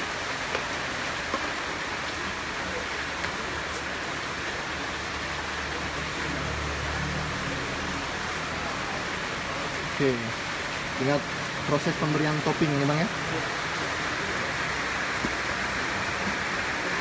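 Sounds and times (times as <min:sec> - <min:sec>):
roadside traffic hiss: 0:00.0 - 0:17.0
passing vehicle hum: 0:05.8 - 0:09.8.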